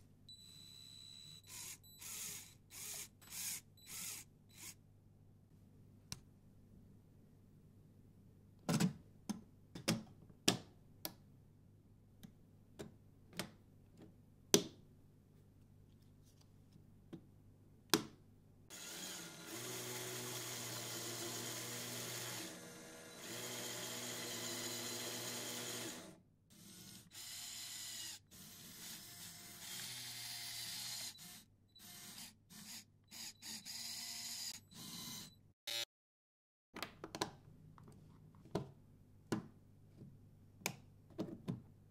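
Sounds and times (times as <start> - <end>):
electric motors and gears whining: 18.7 - 35.8.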